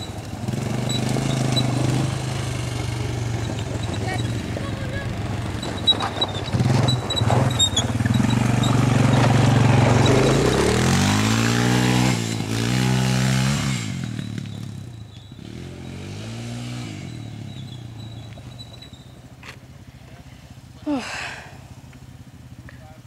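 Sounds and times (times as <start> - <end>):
atv engine revving: 0.0 - 23.0.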